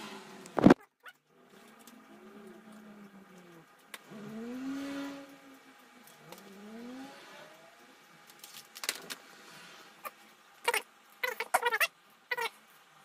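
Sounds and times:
faint steady hum: 0.0s - 13.0s
vehicle engine revving: 2.0s - 8.2s.

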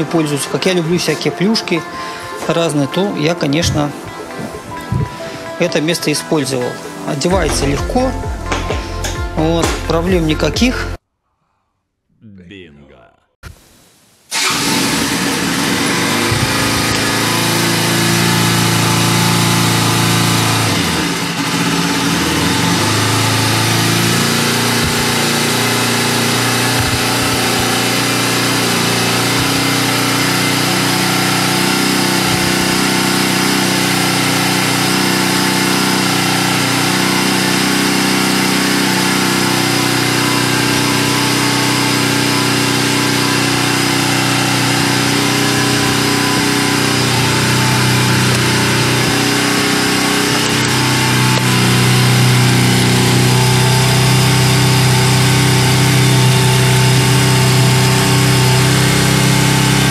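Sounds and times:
motorcycle engine idling: 14.4s - 34.8s.

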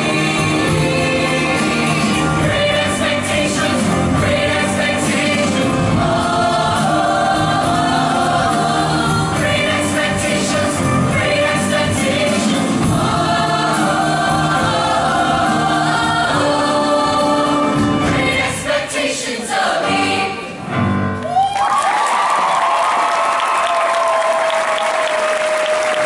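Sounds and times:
choir singing with accompaniment: 0.0s - 21.2s
audience applause: 21.3s - 26.0s.

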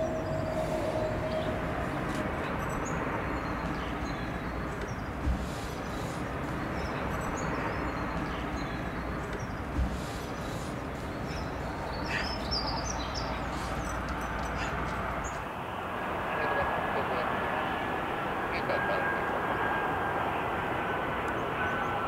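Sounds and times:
small birds chirping: 0.0s - 15.6s
distant jet engine rumble: 0.0s - 22.0s.

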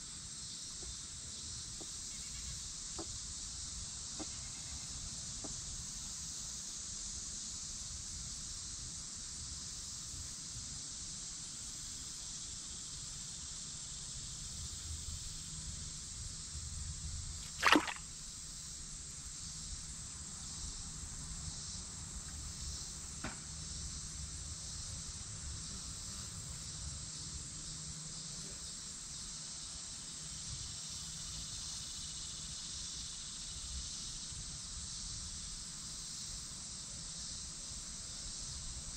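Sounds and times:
insects droning: 0.0s - 38.9s
loud knock or splash: 17.5s - 18.0s.

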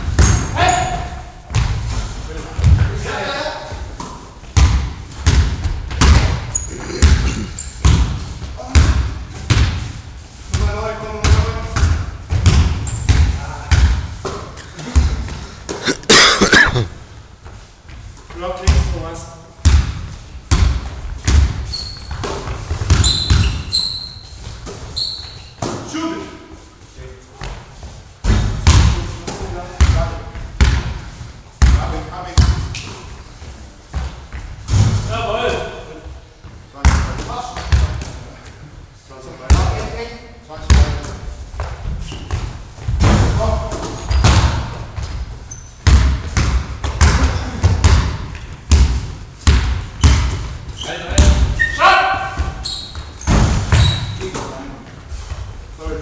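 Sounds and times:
basketball bouncing on gym floor: 0.0s - 2.0s, 2.6s - 3.0s, 3.9s - 9.9s, 10.5s - 16.8s, 18.3s - 19.0s, 19.6s - 23.7s, 28.2s - 33.0s, 36.4s - 38.1s, 39.5s - 39.8s, 40.6s - 54.2s
sneakers squeaking: 0.0s - 9.7s, 11.3s - 18.2s, 19.6s - 25.9s, 41.3s - 43.0s, 43.6s - 55.3s.

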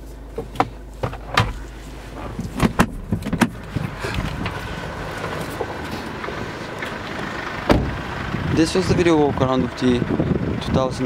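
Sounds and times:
knocks and clunks in car cabin: 0.3s - 4.6s, 7.7s - 8.0s
glove box lid clicking shut: 2.4s - 4.3s.

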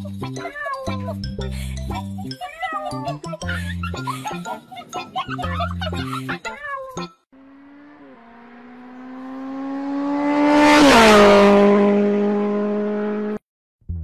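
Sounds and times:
fast car passing by: 7.4s - 13.4s.

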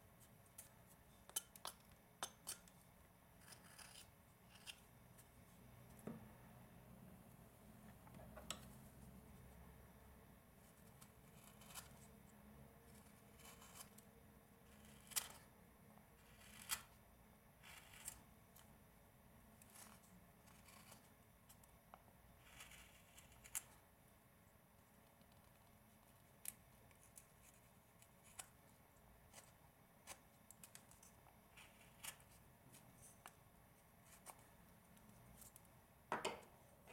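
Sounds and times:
knife carving wood: 0.2s - 5.3s, 10.7s - 17.0s, 17.6s - 18.7s, 19.4s - 23.8s, 25.0s - 33.4s, 34.0s - 35.7s.

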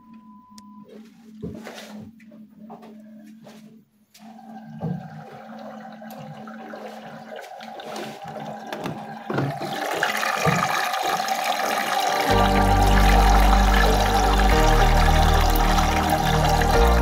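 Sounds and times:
washing machine filling with water: 4.2s - 17.0s.

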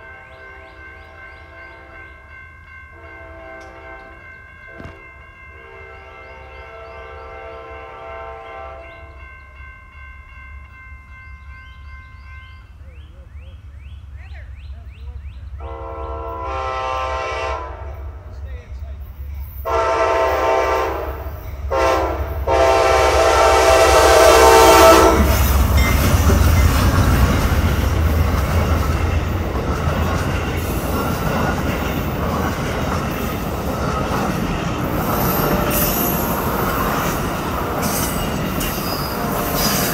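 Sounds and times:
train wheels rumbling and clattering: 0.0s - 5.9s, 17.8s - 39.9s
locomotive air horn blasts: 2.9s - 5.0s, 5.6s - 9.0s, 15.6s - 18.2s, 19.7s - 25.5s, 39.0s - 39.9s
high wheel squeals: 37.8s - 39.9s.

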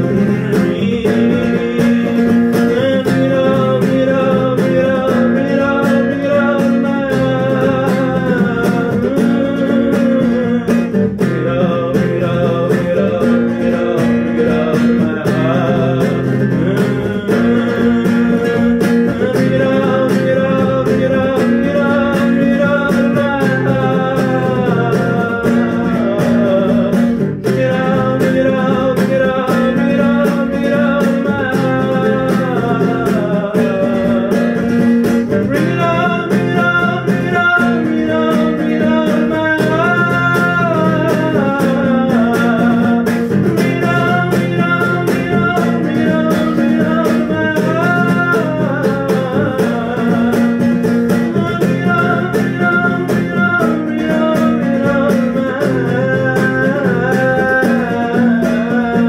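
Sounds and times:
acoustic guitar strumming: 0.0s - 59.0s
man singing: 0.0s - 59.0s.

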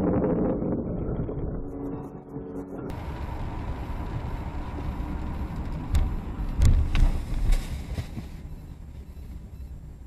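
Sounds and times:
car road and engine rumble: 0.9s - 10.0s.

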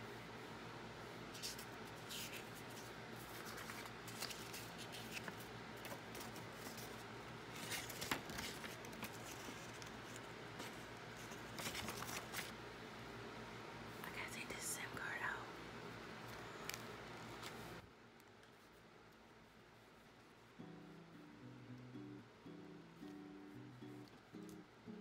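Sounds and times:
faint steady hum: 0.0s - 25.0s
paper and packaging rustling: 1.4s - 12.6s.

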